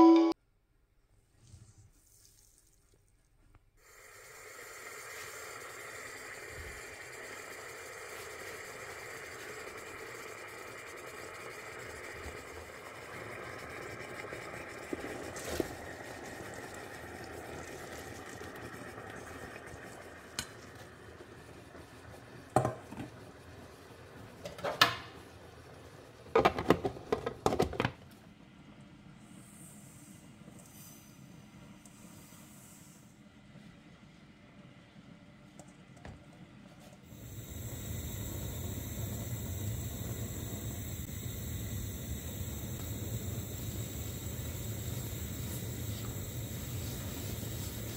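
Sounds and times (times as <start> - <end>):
steady background hum: 11.2 - 47.9.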